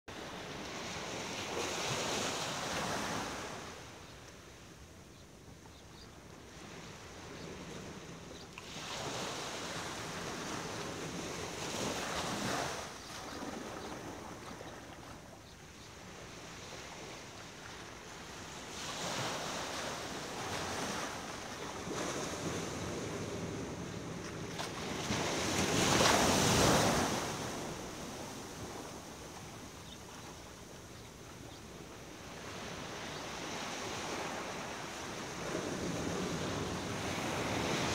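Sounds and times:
ocean waves breaking: 6.6 - 15.3, 16.2 - 30.7, 31.4 - 37.9.

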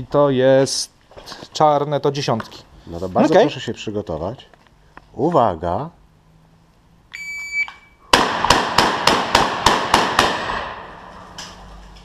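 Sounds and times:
shotgun shots: 8.1 - 11.1.

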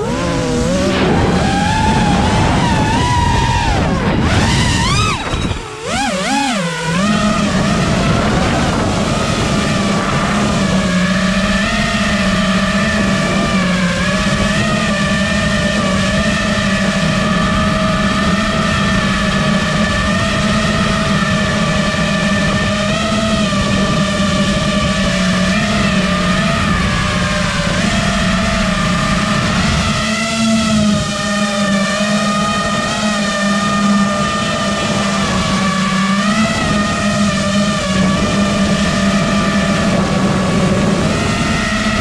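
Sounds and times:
drone motors whining: 0.0 - 42.0.

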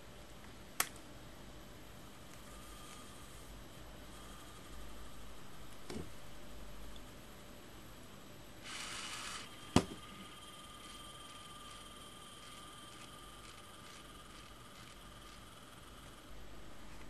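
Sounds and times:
faint steady hiss: 0.0 - 17.0
thin high whine: 2.1 - 5.8, 8.6 - 17.0.

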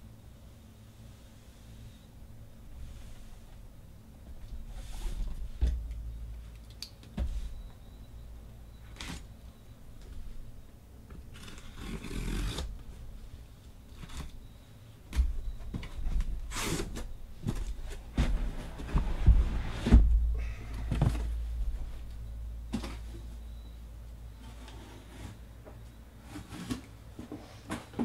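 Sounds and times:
cardboard flaps scraping: 15.7 - 20.2.

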